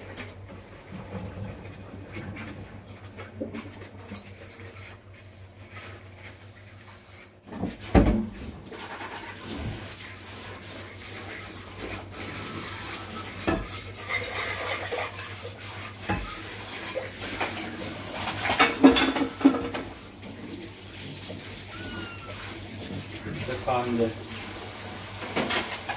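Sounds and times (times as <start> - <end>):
dishes and cutlery clattering: 16.0 - 20.0, 25.2 - 25.9.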